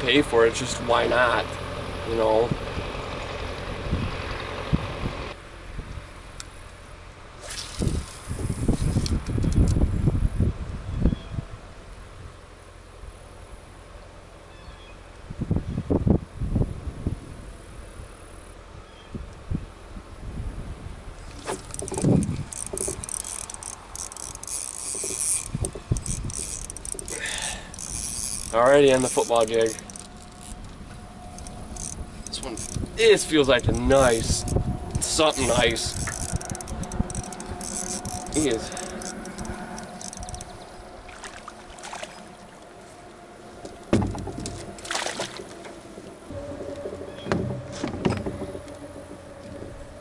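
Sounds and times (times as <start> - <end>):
fishing reel rattling: 21.3 - 40.8
heavy thump: 43.9 - 44.7
heavy thump in boat: 43.9 - 48.7.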